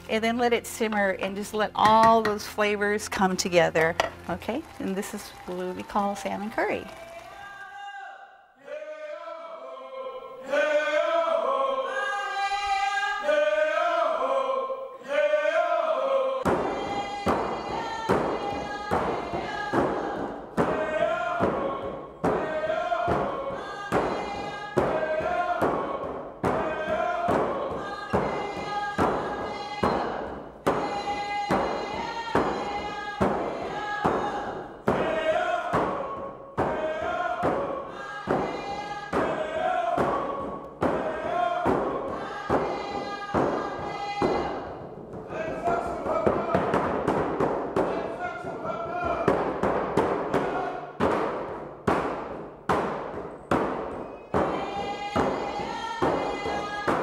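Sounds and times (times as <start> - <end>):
hand drums beating: 0.8 - 2.5, 16.4 - 57.0
group of voices singing: 6.5 - 57.0.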